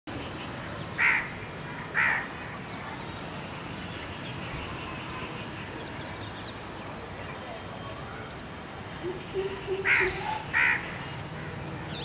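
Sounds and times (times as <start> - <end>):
harsh caw-like bird calls: 1.0 - 2.3, 9.8 - 12.0.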